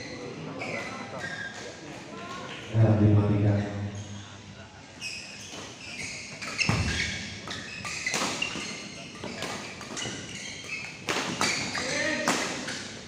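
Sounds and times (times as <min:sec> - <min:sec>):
voices in a hall: 0:00.0 - 0:13.0
rackets hitting shuttlecock: 0:06.4 - 0:13.0.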